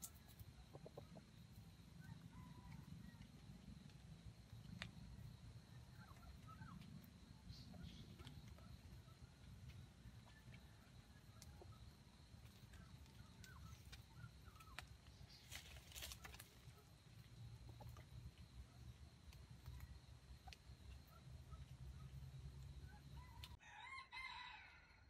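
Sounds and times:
small birds chirping: 0:03.9 - 0:23.5
rustle in dry leaves: 0:14.7 - 0:16.8.

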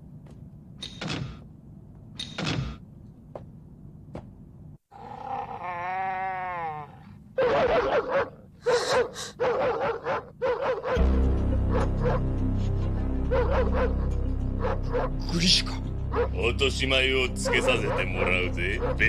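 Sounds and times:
low rumble: 0:11.0 - 0:19.0.

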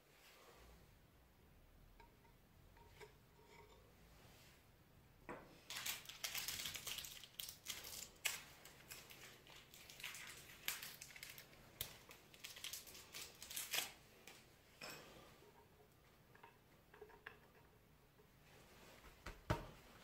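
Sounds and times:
packaging crinkling: 0:05.7 - 0:14.4.

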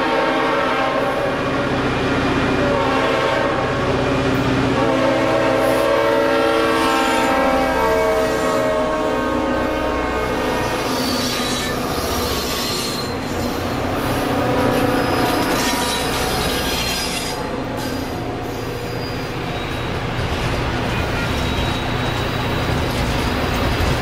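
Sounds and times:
freight train rumble: 0:00.0 - 0:24.0
steel wheels squealing on rail: 0:09.6 - 0:24.0.

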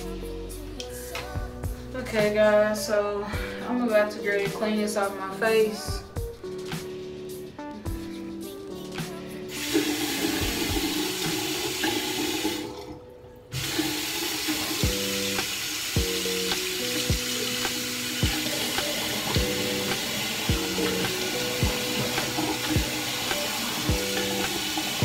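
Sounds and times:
tap water running into sink: 0:09.5 - 0:25.0.

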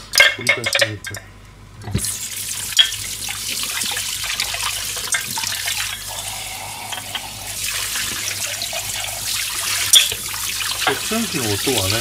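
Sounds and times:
dishes clinking: 0:00.1 - 0:01.3, 0:06.8 - 0:07.5, 0:09.9 - 0:10.2
faucet running into steel sink: 0:02.0 - 0:12.0.

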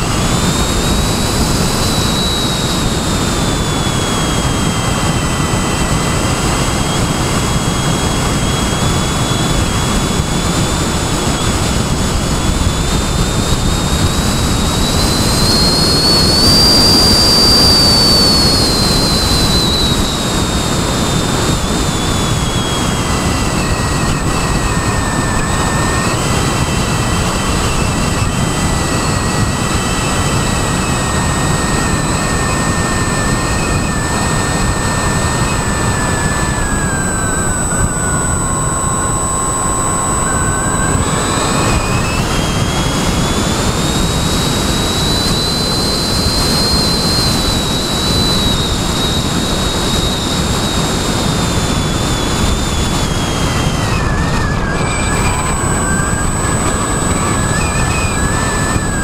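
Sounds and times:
model airplane motor whine: 0:00.0 - 0:59.0.

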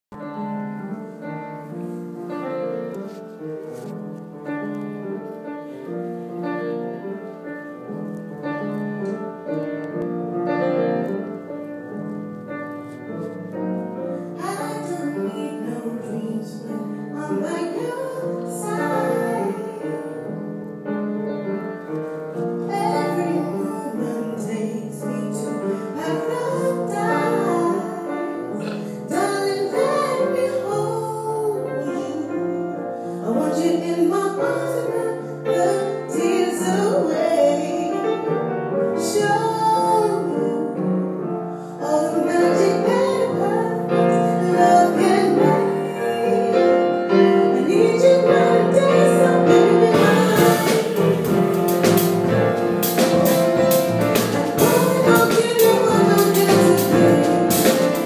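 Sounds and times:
grand piano: 0:00.0 - 0:58.0
woman singing: 0:14.3 - 0:20.5, 0:22.6 - 0:52.1, 0:53.0 - 0:58.0
double bass: 0:47.5 - 0:58.0
cymbals: 0:49.8 - 0:58.0.

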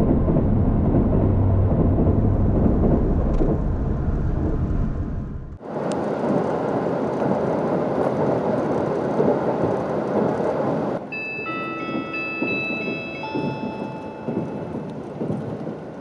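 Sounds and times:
passing train heavy rumble: 0:00.0 - 0:16.0
train running noise: 0:00.0 - 0:16.0.

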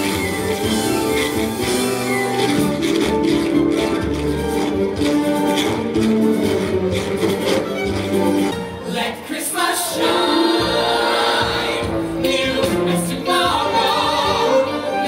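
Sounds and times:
choir singing held notes: 0:08.8 - 0:15.0.

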